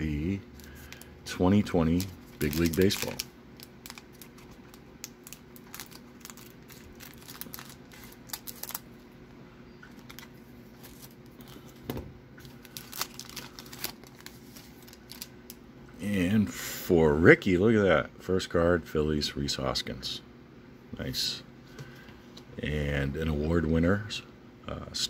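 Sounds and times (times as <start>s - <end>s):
low steady hum: 0.0s - 25.0s
plastic wrapper crinkling: 0.6s - 9.0s, 9.9s - 11.6s, 12.4s - 15.6s
scissors cutting plastic wrapper: 2.0s - 3.2s, 12.7s - 14.3s.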